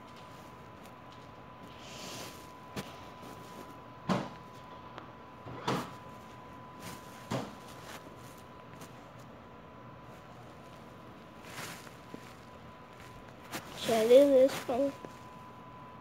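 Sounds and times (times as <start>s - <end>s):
faint high hum: 0.0s - 16.0s.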